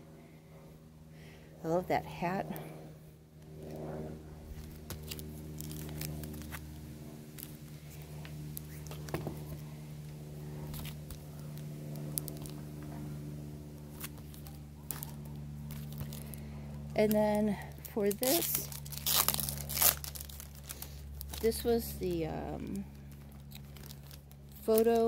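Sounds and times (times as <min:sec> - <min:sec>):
low machine hum: 0:00.0 - 0:25.0
plastic sleeves crinkling: 0:04.5 - 0:09.8, 0:10.6 - 0:12.8, 0:13.8 - 0:25.0.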